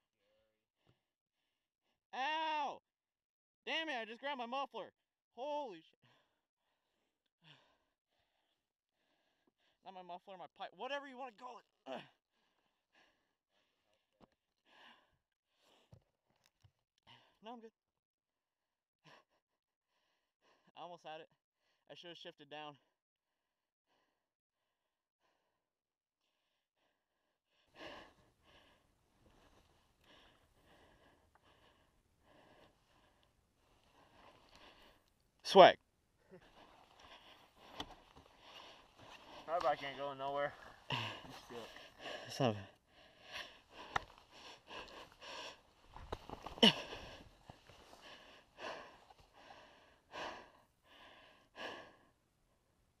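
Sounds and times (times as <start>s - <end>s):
person breathing hard: 6.0s - 9.8s, 11.9s - 16.0s, 26.3s - 35.2s, 36.2s - 39.8s, 40.5s - 52.2s.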